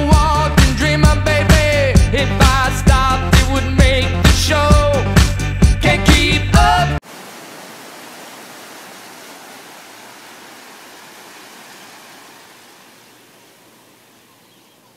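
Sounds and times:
small waves washing on sand: 7.0s - 14.5s.

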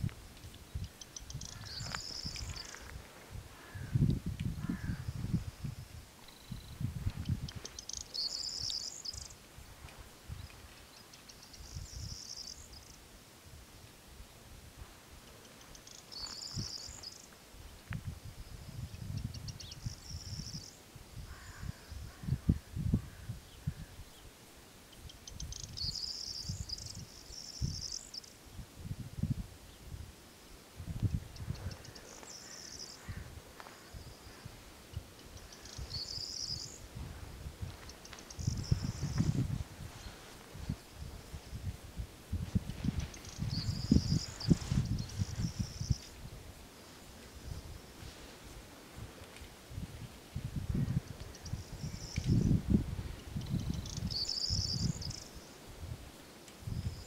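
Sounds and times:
wind buffeting microphone: 0.0s - 10.8s, 16.1s - 24.1s, 28.5s - 46.6s, 47.3s - 57.0s
small bird buzzy trill: 0.5s - 2.8s, 4.6s - 9.4s, 10.3s - 13.0s, 24.9s - 28.4s, 33.8s - 36.9s, 42.8s - 46.2s, 53.3s - 55.6s.

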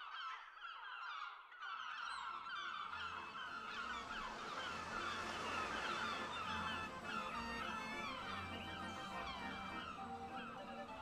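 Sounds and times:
gulls calling: 2.4s - 11.0s.

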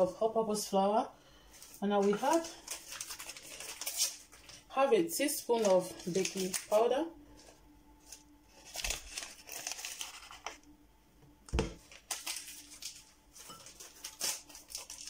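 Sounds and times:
packaging crinkling and rustling: 1.5s - 10.7s, 11.6s - 15.0s.

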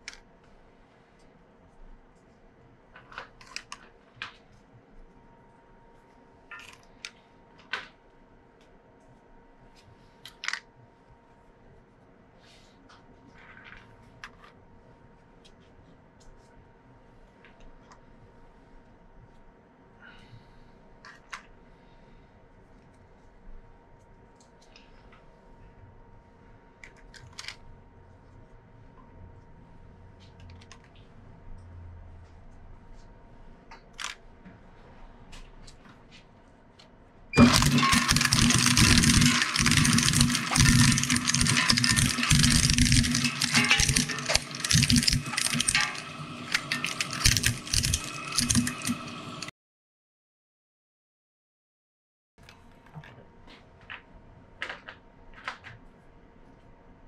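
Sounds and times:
plastic pieces clicking on metal: 37.4s - 49.1s.

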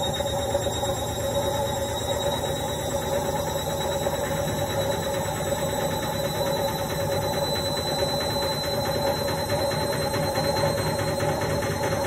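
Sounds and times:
washing machine spinning: 0.0s - 12.0s.

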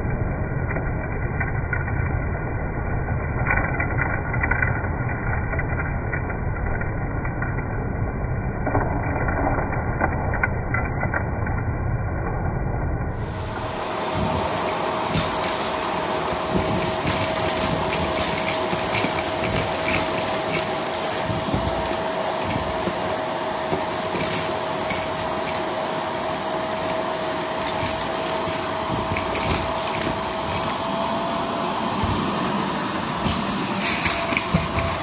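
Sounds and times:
grit rattling up vacuum nozzle: 13.2s - 35.0s
vacuum cleaner motor whistling: 13.2s - 35.0s.

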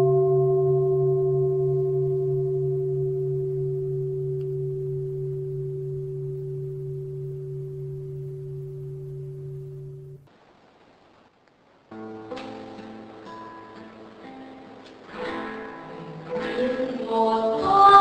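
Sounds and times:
bowl bell ringing: 0.0s - 10.2s.

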